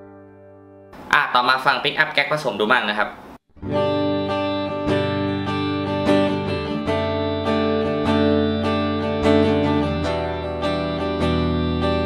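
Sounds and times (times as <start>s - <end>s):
electric guitar strumming chords: 0.0s - 1.1s, 3.6s - 12.0s.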